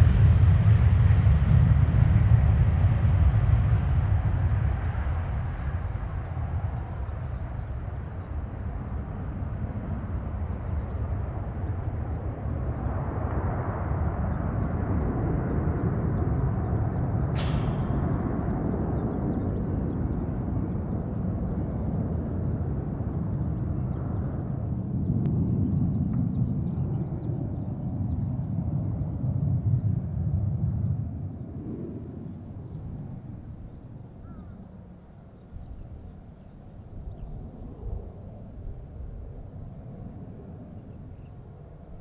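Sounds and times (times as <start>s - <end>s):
jet engines deep rumble: 0.0s - 42.0s
sharp click: 17.4s - 18.6s.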